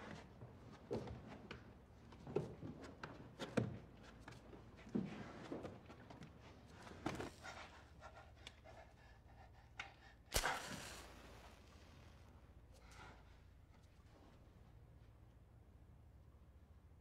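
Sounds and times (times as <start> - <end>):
match striking and flaring: 10.3 - 11.5.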